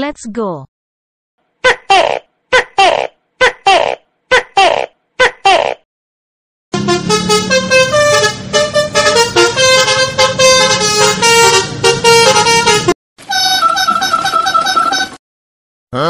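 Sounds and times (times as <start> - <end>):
multi-tone horn playing tune: 6.7 - 15.2.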